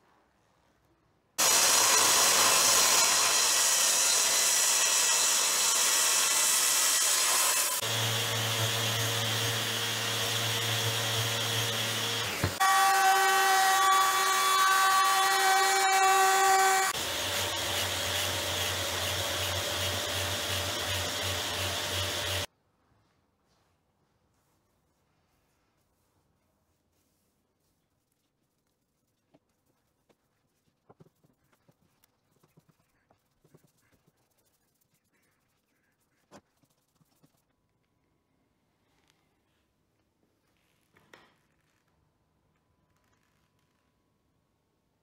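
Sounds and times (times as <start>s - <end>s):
electric orbital sander: 1.4s - 22.5s.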